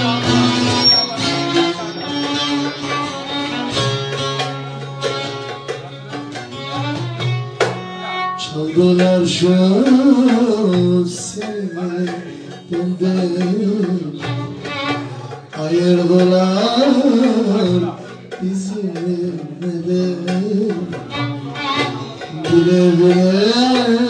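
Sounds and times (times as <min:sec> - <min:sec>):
plucked long-necked lute: 0:00.0 - 0:24.0
man singing: 0:08.4 - 0:24.0.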